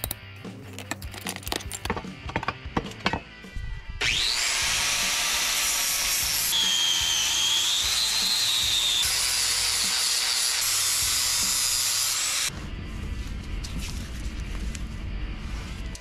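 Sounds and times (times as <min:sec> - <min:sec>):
power tool whining against metal: 0:04.0 - 0:12.5.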